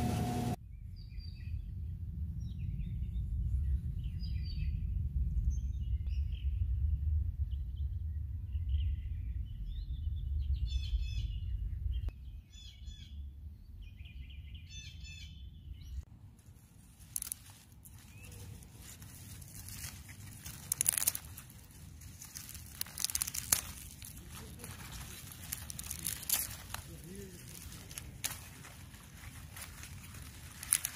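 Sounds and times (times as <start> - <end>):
low rumble: 0.0 - 12.1
leaves rustling as pulled: 16.4 - 30.9
small birds chirping: 16.7 - 30.9.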